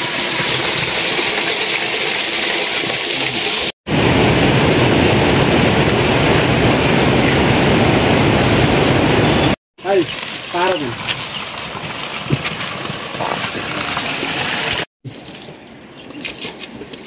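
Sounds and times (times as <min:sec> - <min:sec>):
water rushing down a channel: 0:00.0 - 0:04.5.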